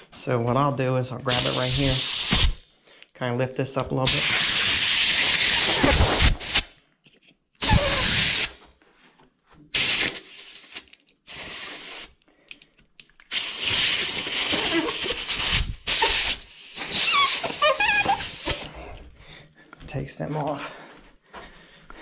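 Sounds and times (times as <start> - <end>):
compressed air blowgun hissing: 1.3 - 2.6, 7.6 - 8.6, 9.7 - 12.1, 13.3 - 18.7.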